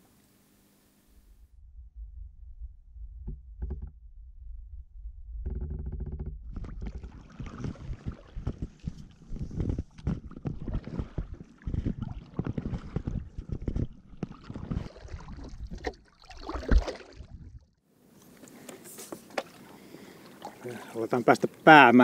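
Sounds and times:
paddle splashing in water: 6.5s - 17.6s, 18.3s - 21.6s.

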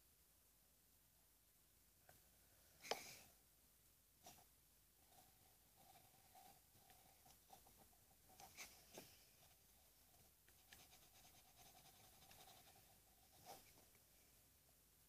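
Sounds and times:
pencil scratching on paper: 4.2s - 13.8s.

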